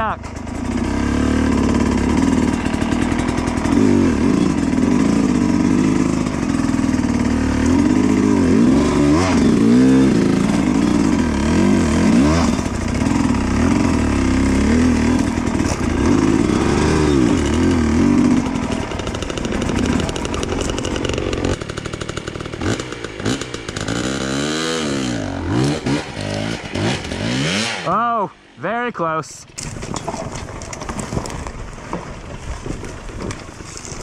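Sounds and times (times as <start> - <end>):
dirt bike engine revving: 0.0 - 28.6.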